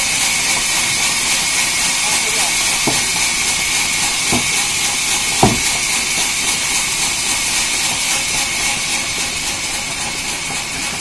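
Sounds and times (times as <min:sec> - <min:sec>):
band saw cutting wood: 0:00.0 - 0:10.5
sharp knock: 0:02.8 - 0:03.1, 0:04.3 - 0:04.6, 0:05.4 - 0:05.8.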